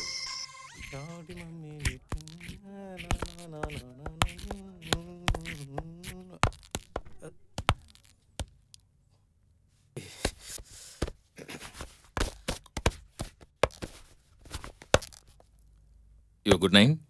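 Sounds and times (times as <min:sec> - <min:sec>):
footsteps on hard floor: 0:02.1 - 0:08.5, 0:10.3 - 0:15.2.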